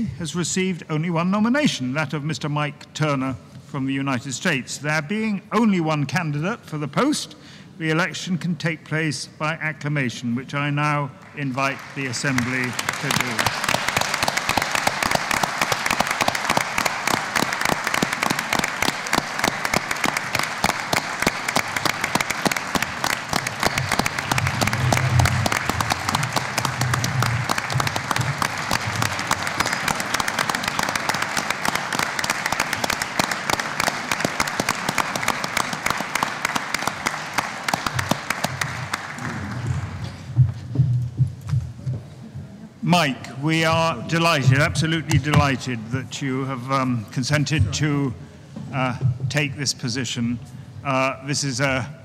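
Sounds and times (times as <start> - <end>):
crowd applauding: 11.2 - 40.3.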